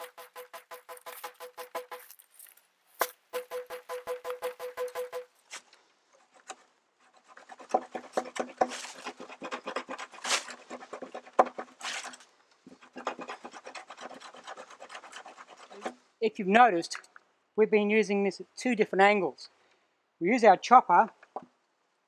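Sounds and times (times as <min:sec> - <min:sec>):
stone sawing bamboo rasp: 0:00.0 - 0:02.2, 0:03.3 - 0:05.6, 0:06.2 - 0:16.1.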